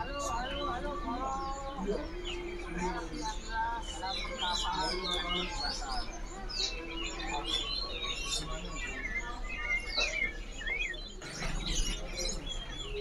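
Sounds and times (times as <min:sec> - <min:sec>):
songbirds chirping and twittering: 0:00.0 - 0:13.0.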